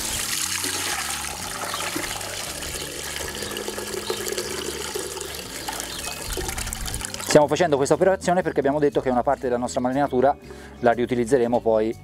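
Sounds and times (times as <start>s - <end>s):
liquid pouring into a metal pot: 0.0s - 7.4s.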